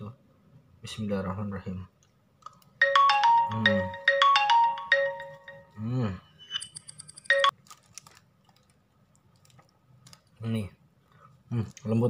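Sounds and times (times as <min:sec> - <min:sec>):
marimba ringtone melody: 0:02.8 - 0:07.5.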